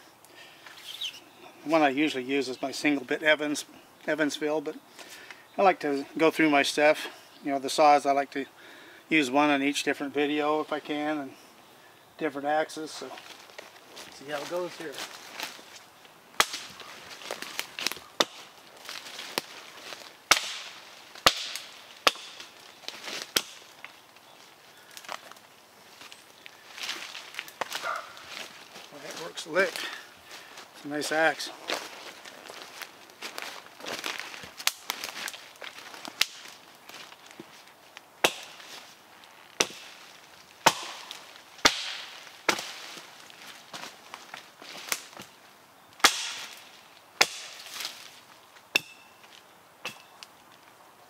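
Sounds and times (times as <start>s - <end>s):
axe chopping branches: 16.4s - 23.9s, 33.3s - 37.6s, 38.2s - 38.8s, 39.6s - 40.0s, 40.6s - 43.1s, 46.0s - 48.1s, 48.7s - 50.2s.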